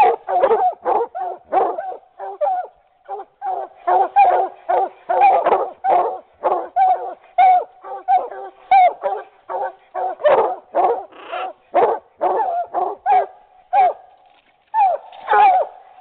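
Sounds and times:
hounds barking: 0:00.0 - 0:14.1, 0:14.8 - 0:16.0.

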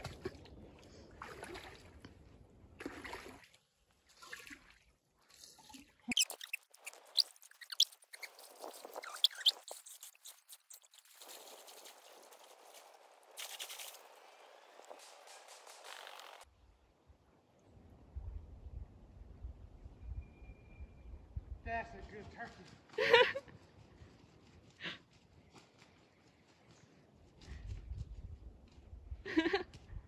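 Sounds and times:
water splashing around legs: 0:00.0 - 0:02.2, 0:02.8 - 0:11.8.

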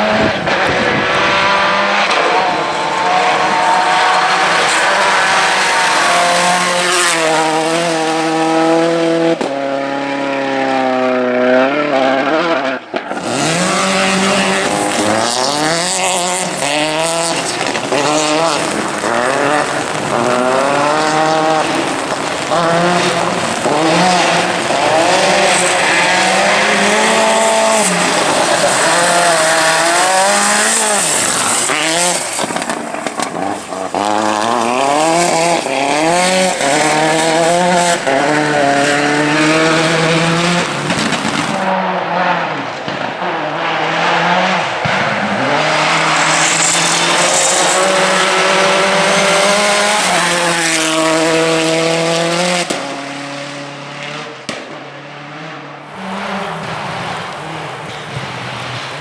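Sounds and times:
rally car engine revving: 0:00.0 - 0:59.0
tyres on gravel: 0:12.9 - 0:41.6, 0:55.8 - 0:59.0.

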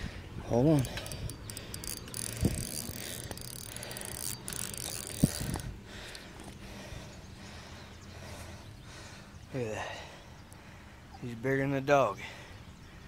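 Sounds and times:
fishing reel ratcheting whir: 0:00.5 - 0:06.6.

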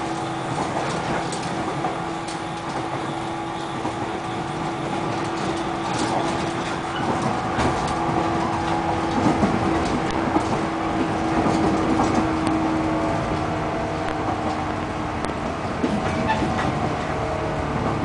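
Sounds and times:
train rumble and hum: 0:00.0 - 0:18.0
wheels clicking over rail joints: 0:00.0 - 0:18.0.

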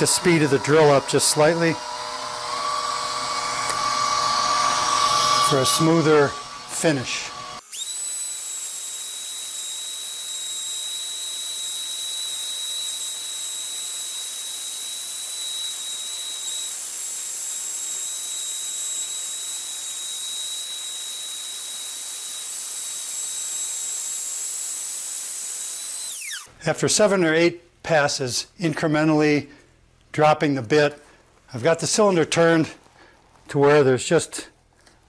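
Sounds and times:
router cutting wood hiss: 0:00.0 - 0:26.5
thin high whine: 0:00.0 - 0:26.5.

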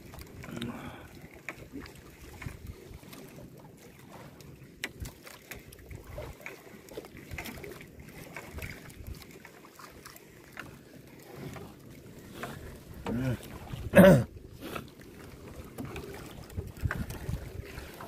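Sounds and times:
wind rumbling on microphone: 0:00.0 - 0:06.4, 0:15.4 - 0:18.0
light knocks and clicks from boat: 0:00.0 - 0:18.0
water slapping boat hull: 0:00.0 - 0:18.0.

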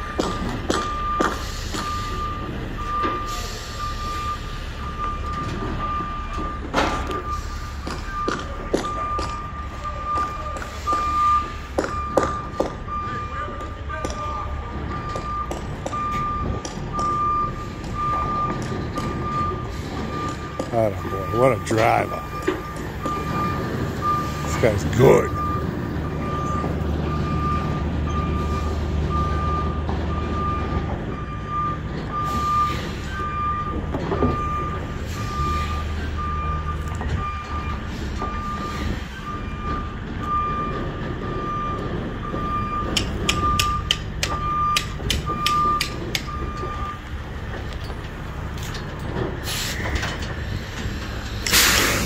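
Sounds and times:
reversing alarm beeping: 0:00.0 - 0:48.8
diesel engine running: 0:00.0 - 0:52.0
sharp clicks: 0:42.9 - 0:46.4.

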